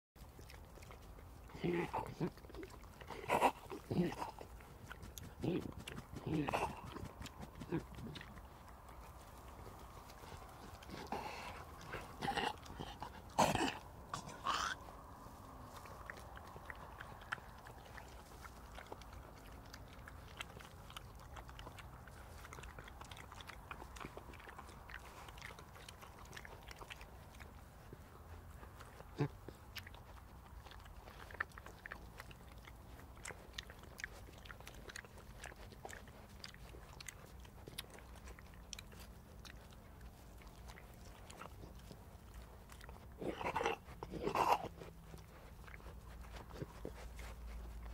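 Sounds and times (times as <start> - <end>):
animals crunching and chewing: 0.2 - 47.9
animal choking and coughing: 1.0 - 8.6, 10.2 - 14.9, 29.0 - 32.8, 42.8 - 45.2.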